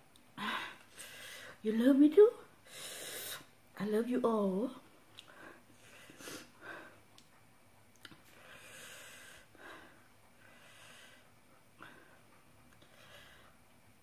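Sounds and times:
faint breathing: 0.4 - 1.6, 5.2 - 7.1, 8.2 - 13.8.

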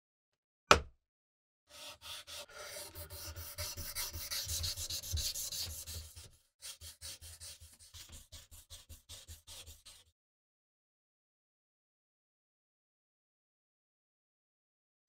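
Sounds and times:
sharpening stone on knife blade: 1.7 - 10.1.

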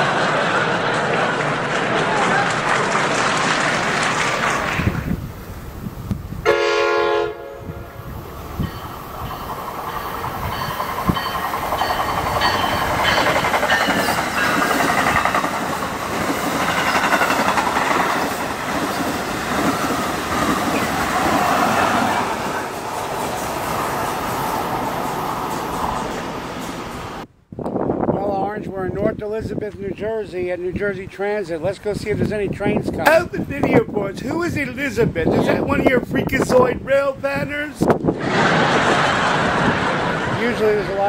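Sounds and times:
train horn blast: 6.4 - 8.1
train wheels rumbling on rails: 7.6 - 27.3, 37.9 - 41.0.

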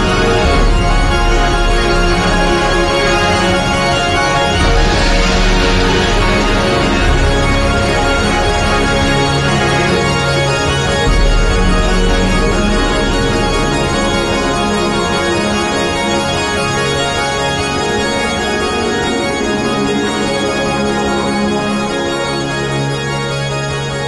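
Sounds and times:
sustained keyboard chords: 0.0 - 24.0
deep low keyboard note: 12.4 - 23.7.

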